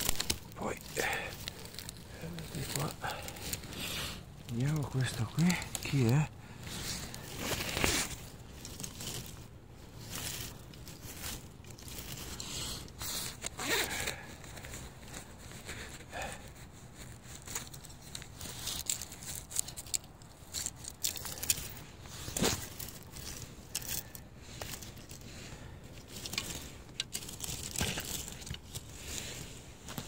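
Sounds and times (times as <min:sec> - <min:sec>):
twigs snapping: 0:00.0 - 0:14.6, 0:17.4 - 0:30.0
pine needles rustling and crackling: 0:00.0 - 0:30.0.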